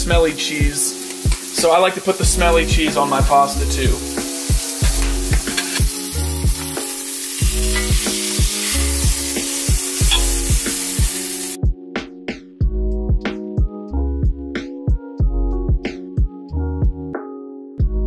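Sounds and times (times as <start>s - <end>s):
food sizzling in a frying pan: 0.0s - 11.6s
background music with steady beat: 0.0s - 18.0s.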